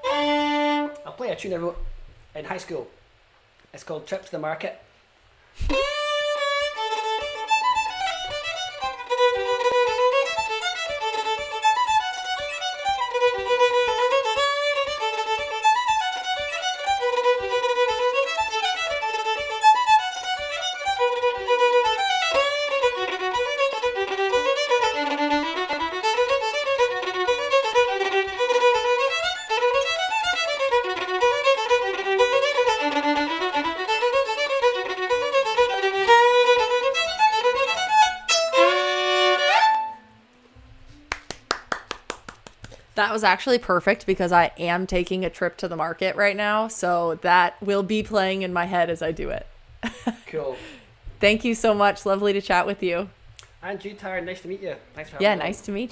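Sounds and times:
solo fiddle playing fast tune: 0.0s - 1.1s, 5.6s - 40.2s.

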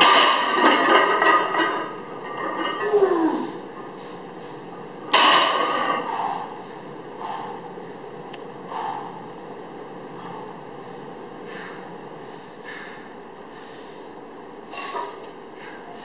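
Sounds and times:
barbell dropping on floor: 0.0s - 3.0s, 5.1s - 6.0s
man grunting: 2.8s - 3.6s
man breathing sharply: 6.0s - 7.7s, 8.7s - 9.3s, 10.2s - 10.6s, 11.4s - 16.0s.

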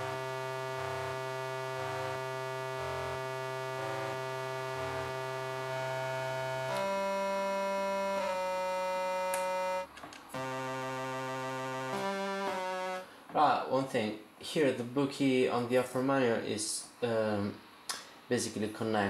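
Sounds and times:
buzzy low keyboard drone: 0.0s - 13.1s
short high keyboard notes: 0.0s - 13.1s.

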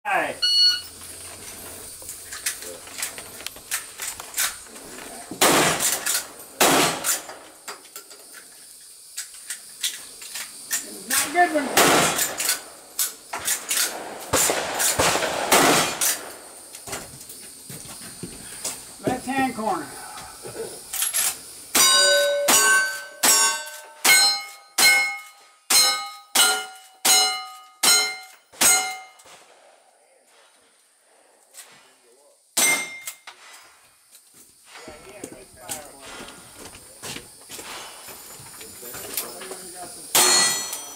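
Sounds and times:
sharp clicks and pings: 0.4s - 0.9s, 21.8s - 29.3s, 32.6s - 33.3s
handgun shots: 5.4s - 7.4s, 11.2s - 12.6s, 13.4s - 16.3s
steel plate target clanging: 21.0s - 29.4s, 32.6s - 33.7s, 40.1s - 40.9s.

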